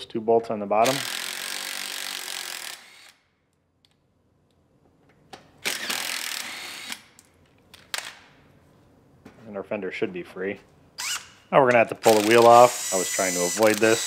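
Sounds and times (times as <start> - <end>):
cordless power driver running: 12.1 - 14.0.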